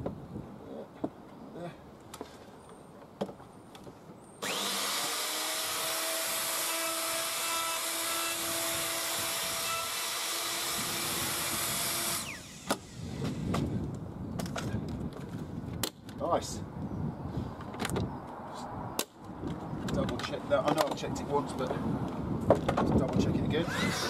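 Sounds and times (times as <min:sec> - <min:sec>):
router motor whine: 0:04.4 - 0:13.5, 0:23.6 - 0:24.0.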